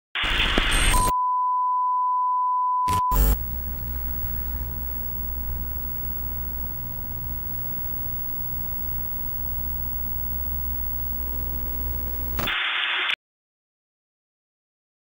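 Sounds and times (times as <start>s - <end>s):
tv static: 0.2s - 1.1s, 2.9s - 13.2s
test-tone beep: 0.9s - 3.4s
low steady hum: 3.1s - 12.4s.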